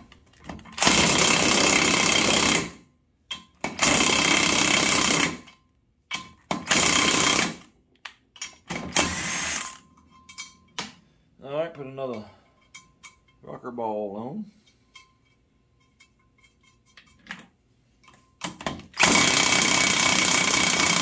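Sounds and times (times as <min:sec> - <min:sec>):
impact wrench bursts: 0:00.7 - 0:02.8, 0:03.6 - 0:05.5, 0:06.5 - 0:07.7, 0:08.7 - 0:09.8, 0:18.9 - 0:21.0.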